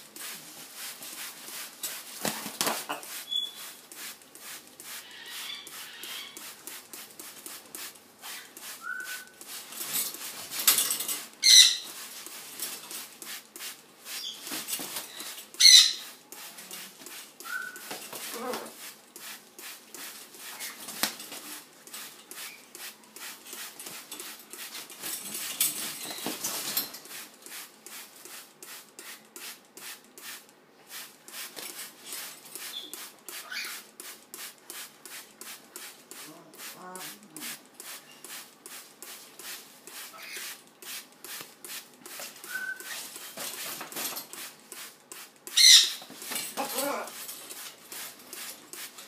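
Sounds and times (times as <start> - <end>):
wings flapping and rustling: 0.0 - 49.0
whistle-like bird calls: 8.8 - 9.3
macaw squawks: 11.4 - 11.9, 15.6 - 16.0, 45.6 - 46.0.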